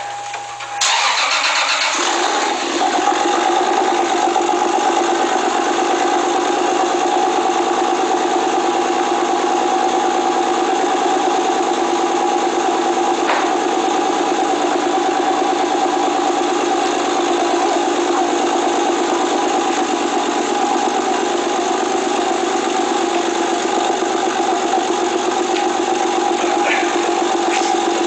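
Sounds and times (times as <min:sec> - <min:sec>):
car engine idling: 0:00.0 - 0:28.0.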